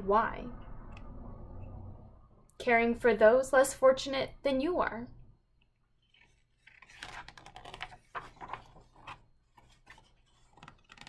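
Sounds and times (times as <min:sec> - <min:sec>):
book page turning and rustling: 0:06.0 - 0:11.0.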